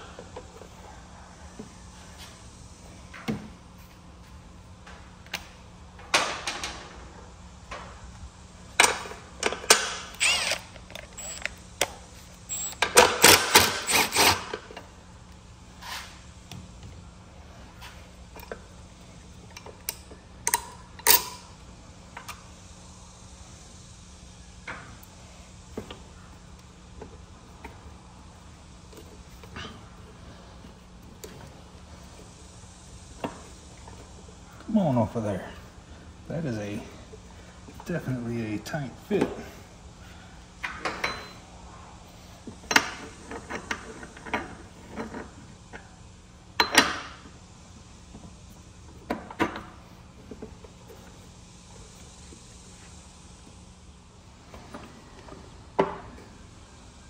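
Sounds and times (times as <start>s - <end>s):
clanking tools and metal parts: 8.8s - 11.5s, 12.5s - 14.8s, 40.6s - 41.4s.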